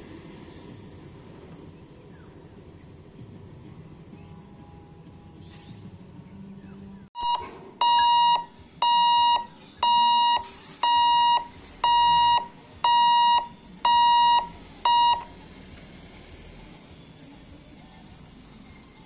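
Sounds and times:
level crossing warning beeps: 7.2 - 15.4.

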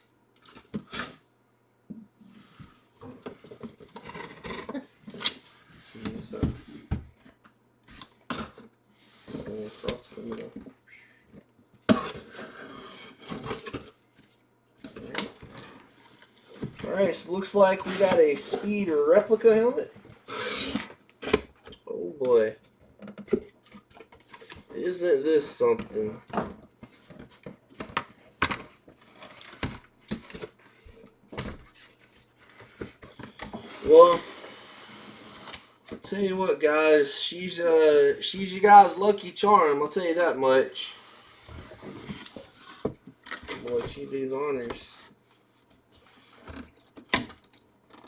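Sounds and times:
cardboard scraping and rubbing: 16.4 - 19.4.

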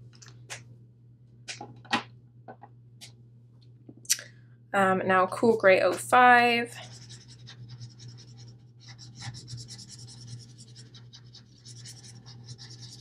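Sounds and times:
low steady hum: 0.0 - 13.0
marker scratching on paper: 6.8 - 13.0.

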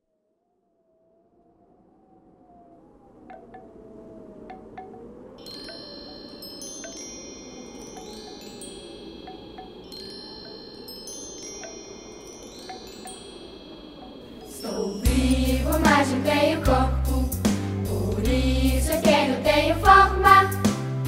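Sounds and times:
wind chimes ringing: 4.5 - 16.6.

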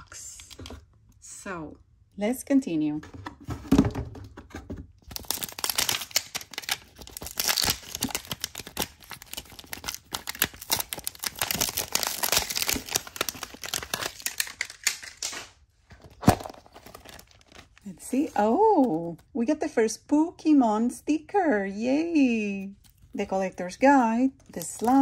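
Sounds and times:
plastic wrapping crinkling and tearing: 5.0 - 19.2, 24.4 - 25.0.

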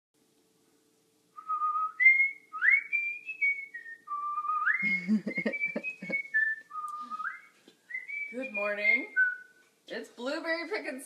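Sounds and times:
person whistling a tune: 1.4 - 9.6.

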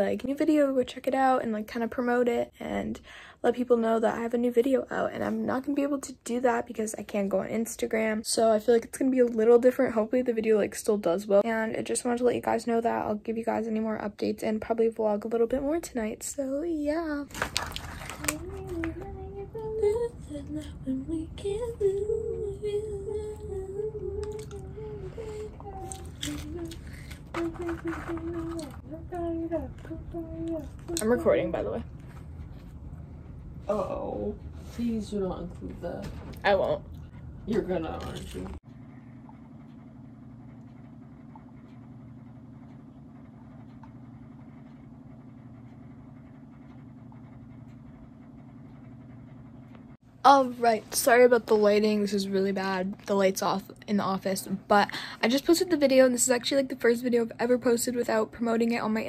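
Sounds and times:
low background hum: 0.0 - 59.0
girl singing slow tune: 16.2 - 31.3.

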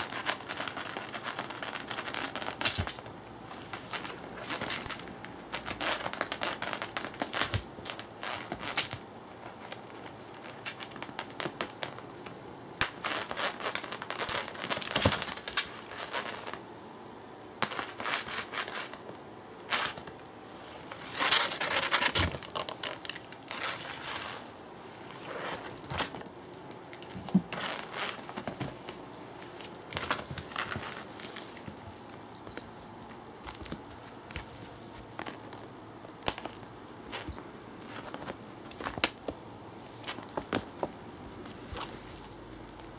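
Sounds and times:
light metallic jingle: 0.0 - 3.3, 6.9 - 9.5, 13.6 - 16.4, 25.5 - 42.9
cats scuffing and pouncing: 25.1 - 42.9.

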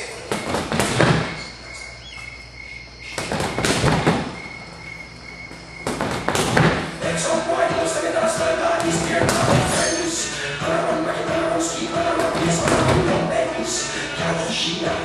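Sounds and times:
gloves punching a bag: 0.3 - 1.5, 3.2 - 4.3, 5.8 - 6.9.

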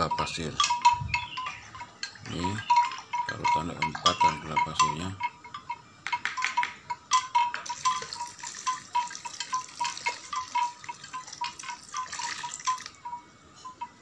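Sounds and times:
liquid pouring and splashing: 7.7 - 13.0.

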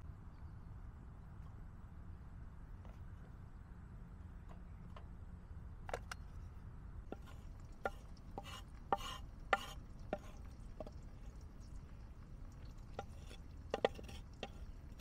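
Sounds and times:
knife scraping board: 7.2 - 10.4, 13.0 - 14.6.

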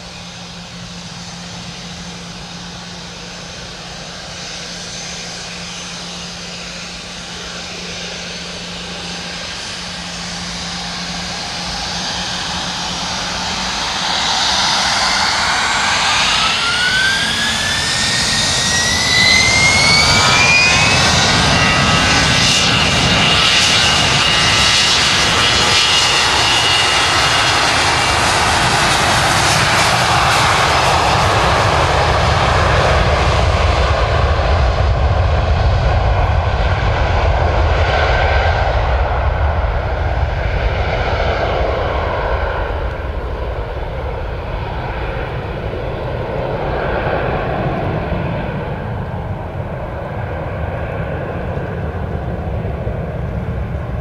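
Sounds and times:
jet engines roaring at takeoff: 0.0 - 54.0.

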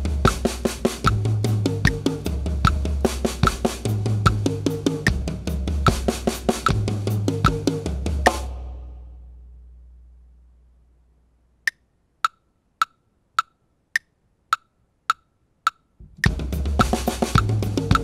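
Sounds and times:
drum kit playing: 0.0 - 8.9, 16.0 - 18.0
metronome clicks: 11.7 - 18.0.

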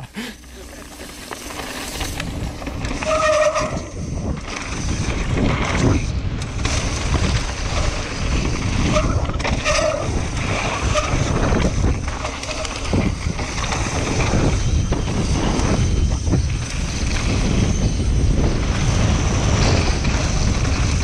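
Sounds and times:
bike rattling: 0.0 - 21.0
bike tyres crunching on gravel: 0.2 - 21.0.

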